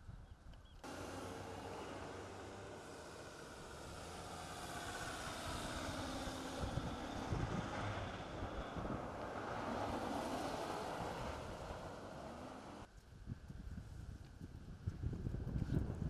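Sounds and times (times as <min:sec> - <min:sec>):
pickup trucks driving past: 0:00.8 - 0:12.9.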